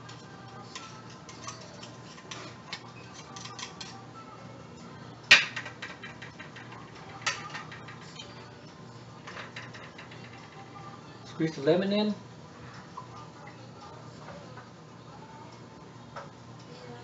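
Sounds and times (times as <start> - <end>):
shells and knife scraping a plate: 0.9 - 4.0.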